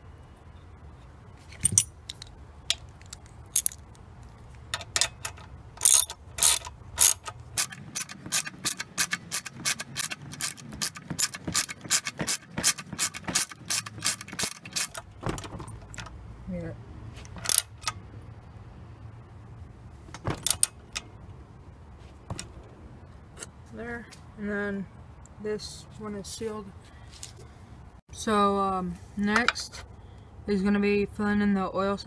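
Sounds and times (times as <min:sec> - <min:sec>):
ratchet wrench clicking: 0:03.0 - 0:03.8, 0:04.7 - 0:15.0, 0:17.3 - 0:18.0.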